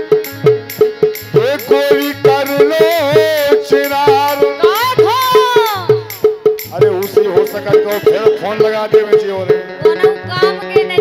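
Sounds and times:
drum beat: 0:00.0 - 0:11.0
woman singing: 0:04.4 - 0:06.2, 0:09.8 - 0:11.0.

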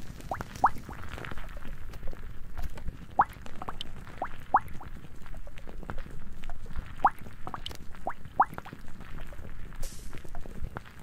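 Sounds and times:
crinkling clicks: 0:00.0 - 0:03.8.

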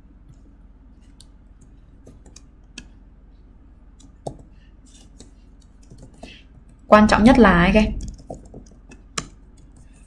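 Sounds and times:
computer keyboard keystrokes: 0:01.2 - 0:02.9, 0:05.1 - 0:06.8, 0:07.9 - 0:09.9.

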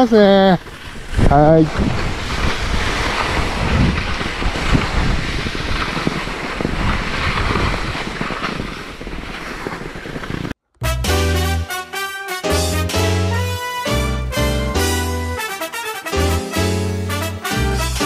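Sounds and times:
skis scraping over snow: 0:00.0 - 0:10.6
wind buffeting microphone: 0:00.0 - 0:10.6
music: 0:10.8 - 0:18.0.

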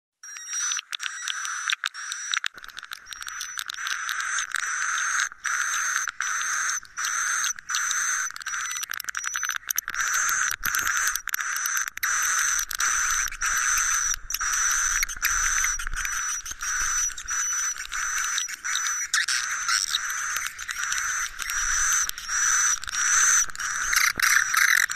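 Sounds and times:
sharp clicks: 0:00.2 - 0:24.9
birds twittering chatter: 0:10.0 - 0:24.9.

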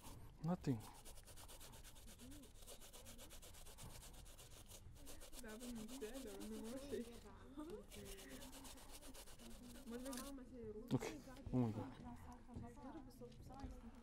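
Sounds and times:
pear grated on hand grater: 0:00.7 - 0:10.3.

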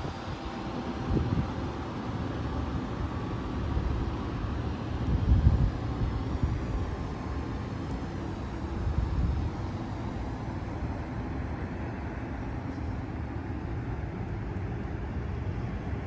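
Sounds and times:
wind buffeting a microphone: 0:00.0 - 0:01.6, 0:05.0 - 0:07.0.

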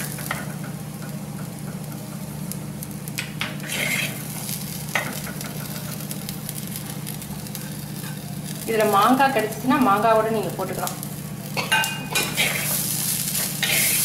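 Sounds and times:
spatula scraping clay pot: 0:03.6 - 0:04.2, 0:13.6 - 0:14.0.

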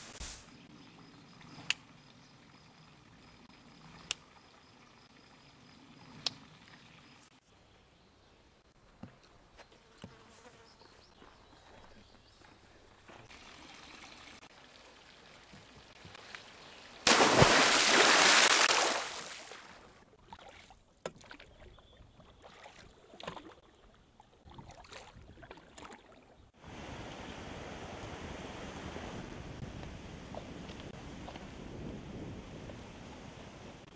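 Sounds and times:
stream water flowing: 0:12.4 - 0:21.4
water splashing: 0:13.1 - 0:26.3.

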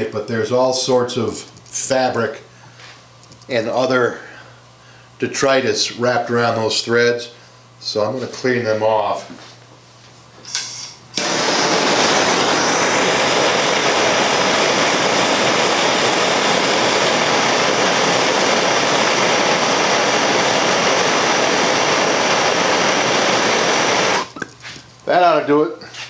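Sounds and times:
gas torch hissing: 0:10.5 - 0:25.3.

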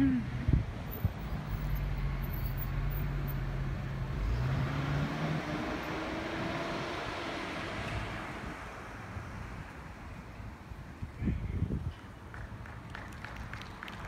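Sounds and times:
car engine hum: 0:00.0 - 0:11.2
road and tyre noise: 0:00.0 - 0:14.0.

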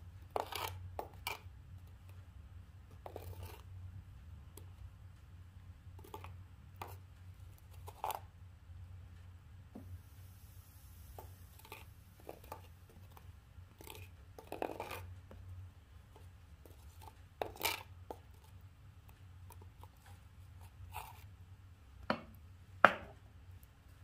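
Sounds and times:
low steady hum: 0:00.0 - 0:24.0
metal spoon scraping pot: 0:13.8 - 0:15.1, 0:17.0 - 0:17.9.

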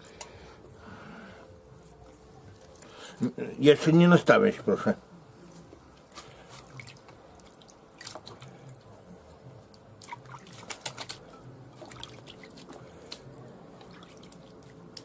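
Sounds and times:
wet squelches and slaps of meat: 0:06.1 - 0:08.8, 0:09.7 - 0:11.2, 0:11.8 - 0:15.0.

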